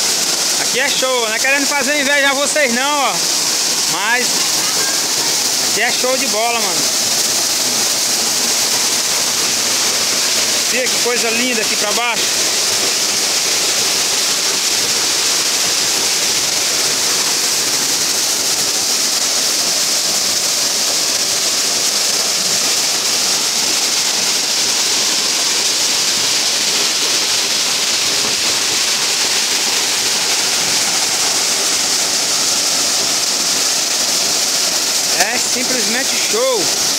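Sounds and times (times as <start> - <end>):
waterfall pouring and splashing: 0.0 - 36.9.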